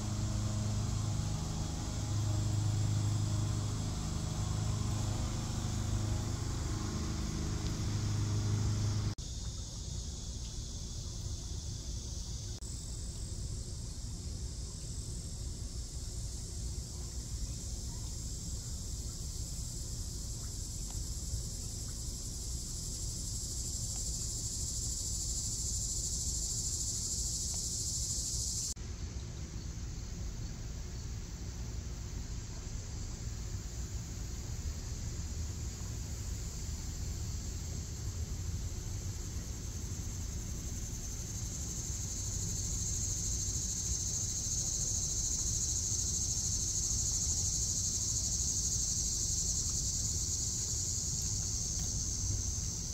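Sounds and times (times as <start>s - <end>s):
engine humming: 0.0s - 9.2s
insects buzzing: 0.0s - 52.9s.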